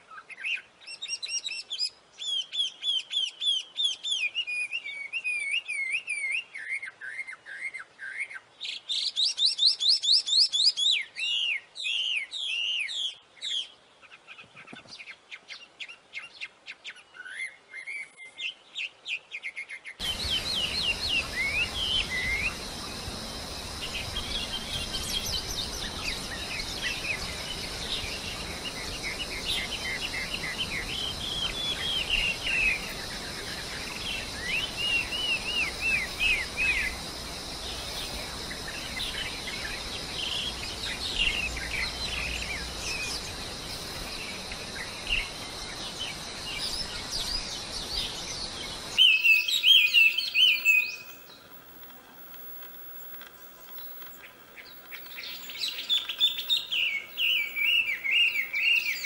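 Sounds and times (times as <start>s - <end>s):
bird chirping song: 0.0s - 59.0s
steady high hiss: 20.0s - 59.0s.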